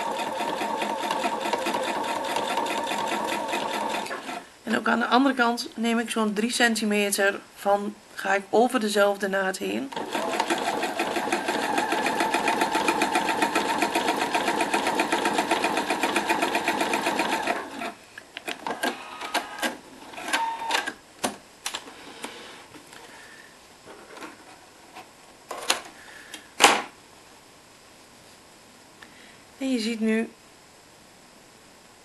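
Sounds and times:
sewing machine stitching: 0.0s - 4.4s, 9.9s - 18.0s.

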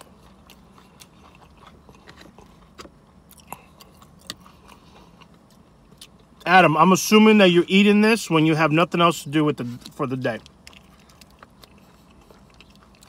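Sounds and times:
small crunches and mouth clicks: 0.0s - 6.5s, 9.6s - 13.0s
chewing crispy bacon: 0.0s - 13.0s.

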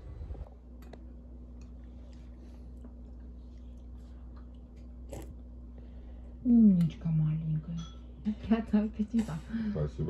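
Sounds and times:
steady low hum: 0.0s - 10.0s
soft chewing: 0.8s - 6.4s.

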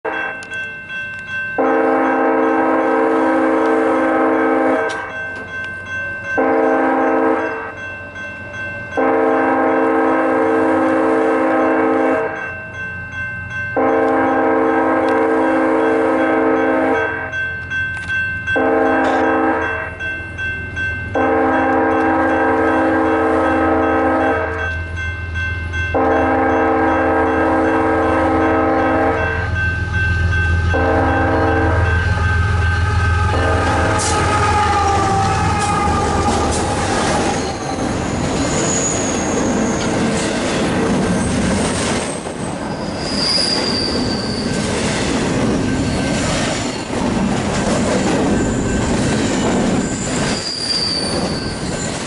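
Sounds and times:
locomotive air horn blasts: 1.6s - 5.1s, 6.4s - 7.6s, 9.0s - 12.4s, 13.8s - 17.1s, 18.6s - 19.8s, 21.2s - 24.6s, 26.0s - 29.6s, 30.5s - 38.1s
locomotive rumble: 13.7s - 52.0s.

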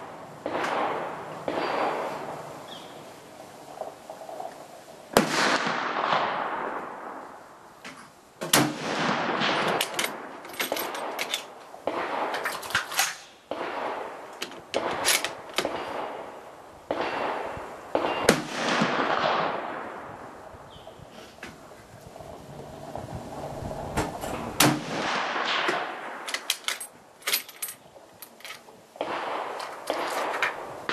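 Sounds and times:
rifle shots echoing: 0.0s - 2.6s, 5.1s - 7.3s, 8.5s - 20.2s, 24.6s - 26.9s, 29.0s - 30.9s
rifle bolt metallic clicks: 25.7s - 28.7s.

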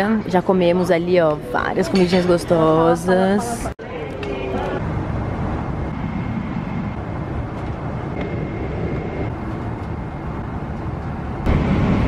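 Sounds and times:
airliner cabin rumble: 4.0s - 12.0s.

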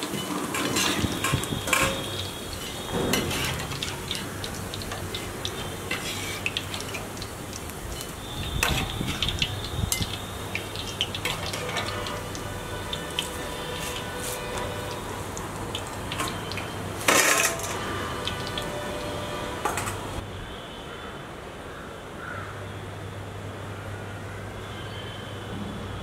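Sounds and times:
metal skimmer clinking and scraping: 0.0s - 7.2s, 7.9s - 15.0s, 15.8s - 18.6s
deep-frying sizzle: 0.0s - 20.2s.

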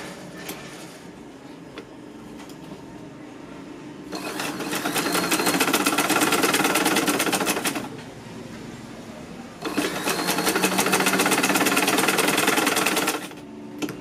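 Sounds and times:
sewing machine stitching: 4.1s - 7.9s, 9.6s - 13.4s.

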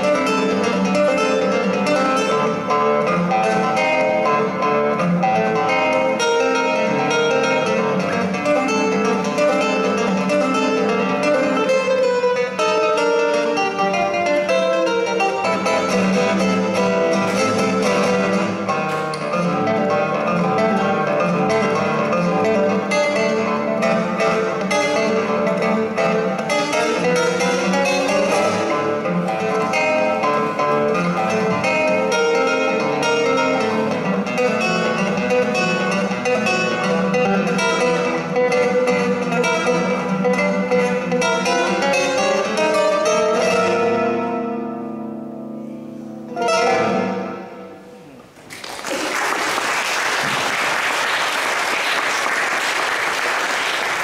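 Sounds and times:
plucked string music strummed: 0.0s - 48.5s
audience applause: 48.4s - 54.0s.

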